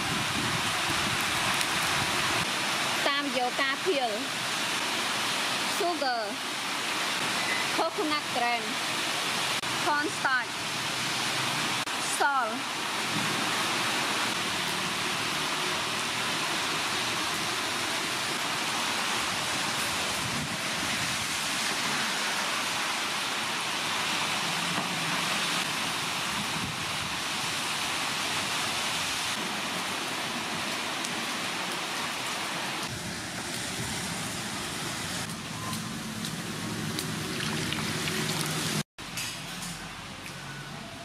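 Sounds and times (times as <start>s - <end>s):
water splashing in a metal pot: 36.9s - 38.8s.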